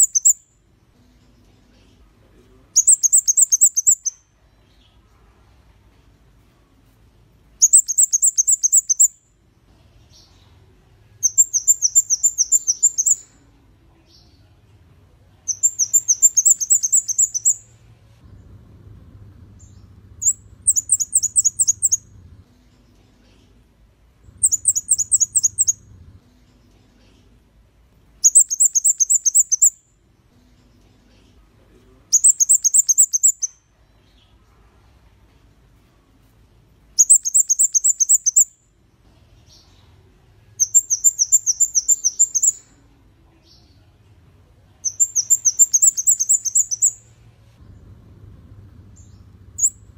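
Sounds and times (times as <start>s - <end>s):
bird singing high ticking notes: 0.0s - 0.5s, 2.8s - 4.2s, 7.6s - 9.2s, 11.2s - 13.3s, 15.5s - 17.7s, 19.6s - 22.2s, 24.3s - 25.9s, 28.2s - 29.8s, 32.1s - 33.6s, 37.0s - 38.6s, 40.6s - 42.6s, 44.8s - 47.0s, 48.9s - 49.9s.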